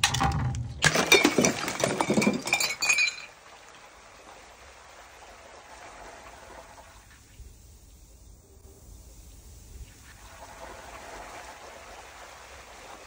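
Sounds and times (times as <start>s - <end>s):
glass bottle hitting concrete: 0.0s - 3.4s
glass shattering: 0.0s - 3.4s.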